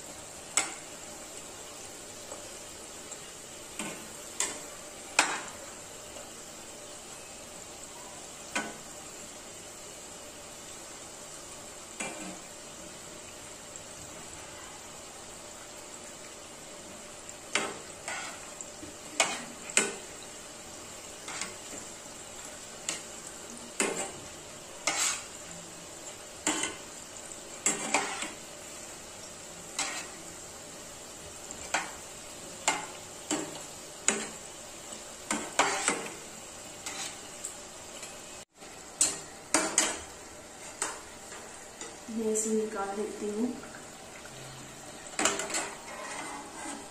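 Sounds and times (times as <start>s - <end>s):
food sizzling in hot oil: 0.0s - 46.9s
metal spatula scraping pan: 17.5s - 18.5s, 19.1s - 20.0s, 21.2s - 21.6s, 24.8s - 25.4s, 27.6s - 28.4s, 29.7s - 30.2s, 35.3s - 36.2s, 36.8s - 37.3s, 45.2s - 46.9s.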